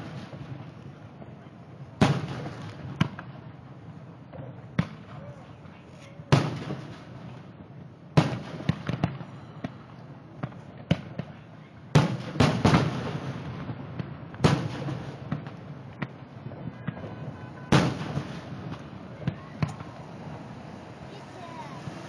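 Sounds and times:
firework pops and crackles: 0:00.0 - 0:03.6, 0:04.2 - 0:20.1
firework shells booming: 0:02.0 - 0:03.4, 0:06.3 - 0:07.4, 0:08.2 - 0:09.8, 0:10.4 - 0:22.0.

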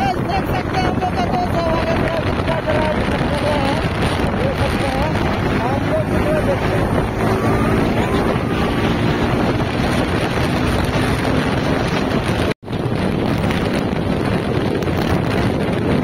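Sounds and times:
road and engine rumble: 0:00.0 - 0:16.0
wind buffeting microphone: 0:00.0 - 0:16.0.

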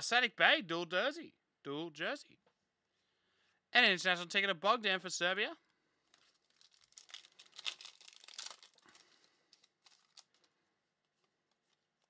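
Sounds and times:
plastic wrapper crinkling: 0:05.6 - 0:12.0.

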